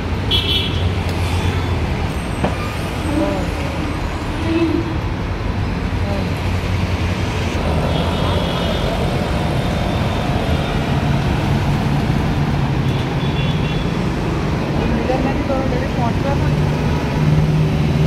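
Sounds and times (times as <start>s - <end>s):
bus passing: 0.0s - 18.0s
cars passing: 0.0s - 18.0s.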